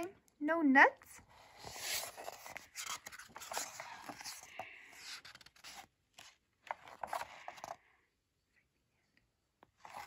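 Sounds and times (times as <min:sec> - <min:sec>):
book pages turning: 0:01.2 - 0:07.9, 0:09.6 - 0:10.0.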